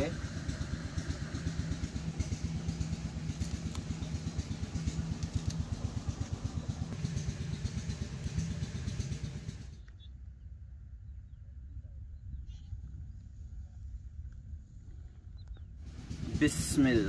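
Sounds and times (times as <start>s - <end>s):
engine idling: 0.0s - 9.9s, 15.9s - 17.0s.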